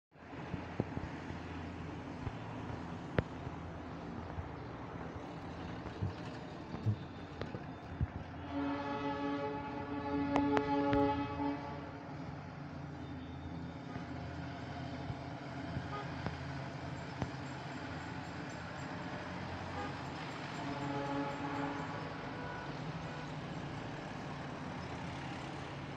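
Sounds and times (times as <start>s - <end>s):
train running low rumble: 0.2s - 25.9s
train whistle: 8.4s - 12.1s, 19.7s - 23.4s.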